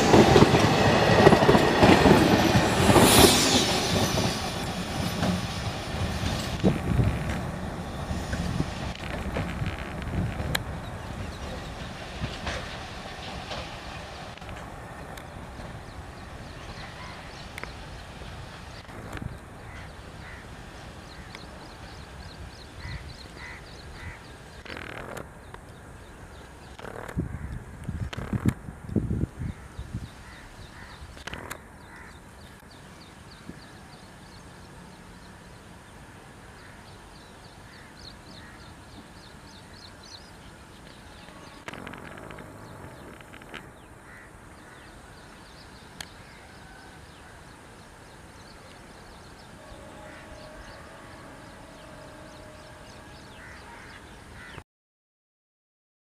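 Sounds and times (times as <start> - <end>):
faint outdoor background: 0.0 - 54.6
birds chirping: 36.6 - 54.6.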